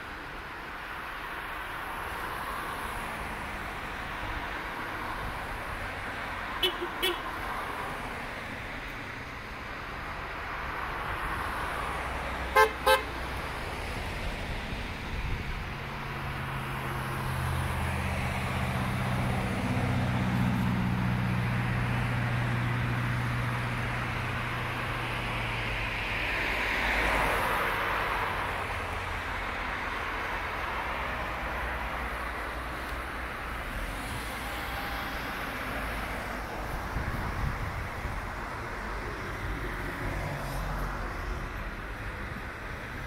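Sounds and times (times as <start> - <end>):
tyres on wet road: 0.0 - 43.0
car horn honks: 6.6 - 7.3, 12.5 - 13.1.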